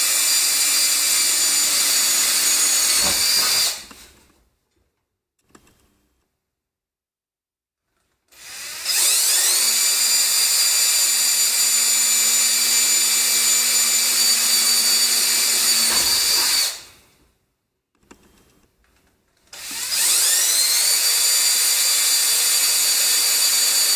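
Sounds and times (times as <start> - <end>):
cordless drill whining: 0.0 - 4.0, 8.3 - 17.1, 19.5 - 23.9.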